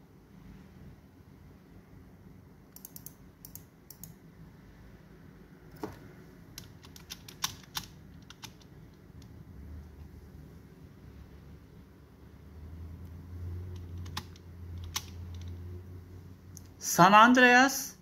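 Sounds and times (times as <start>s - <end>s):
low steady hum: 0.0s - 18.0s
keyboard keys clicking: 2.8s - 4.1s, 6.6s - 9.3s, 13.7s - 15.6s.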